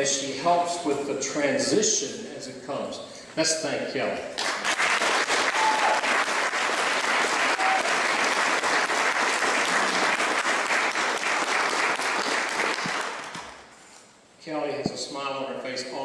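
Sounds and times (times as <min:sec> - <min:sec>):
audience applauding: 0:04.4 - 0:13.6.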